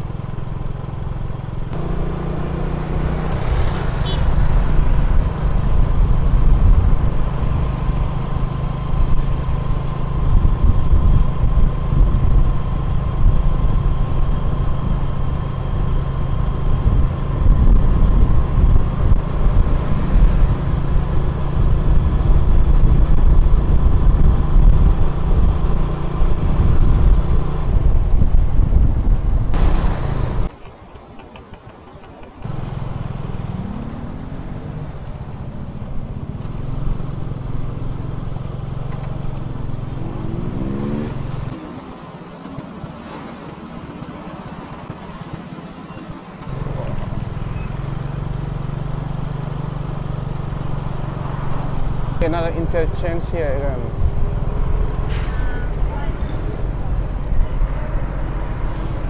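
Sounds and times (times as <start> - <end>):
motorbike engine: 0.0 - 59.0
surrounding traffic: 0.0 - 59.0
wind rumble on microphone: 3.2 - 30.5.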